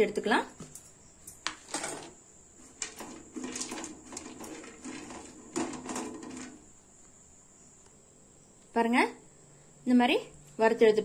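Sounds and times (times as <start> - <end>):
spatula scraping pan: 1.9 - 6.7
nuts frying in fat: 1.9 - 7.2.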